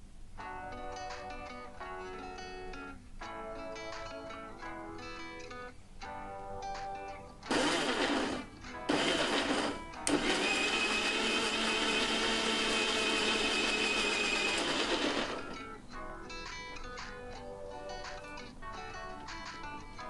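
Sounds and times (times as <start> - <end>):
mixer grinder blending: 7.5 - 15.5.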